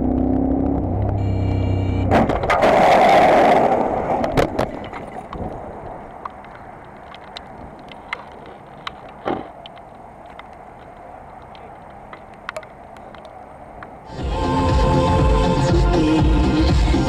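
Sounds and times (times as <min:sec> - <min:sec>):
low background noise: 0:00.1 - 0:16.1
scattered clicks: 0:04.2 - 0:14.0.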